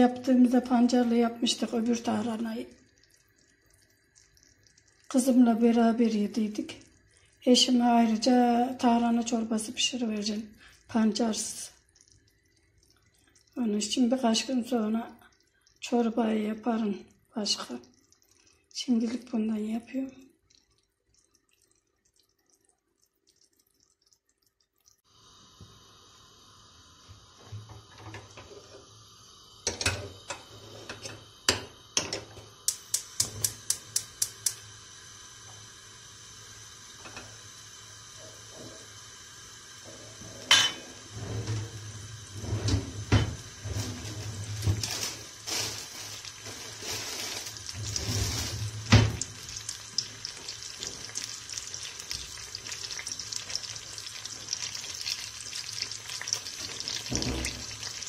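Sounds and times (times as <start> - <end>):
butter sizzling in frying pan: 26.9 - 58.0
stove igniter clicks: 31.5 - 34.6
pots clanking on stove grates: 39.9 - 41.8, 57.0 - 57.8.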